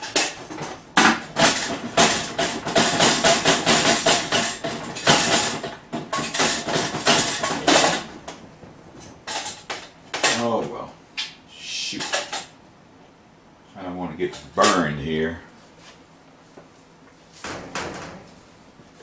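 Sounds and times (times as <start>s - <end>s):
knocking on popcorn machine pot: 1.0s - 8.1s.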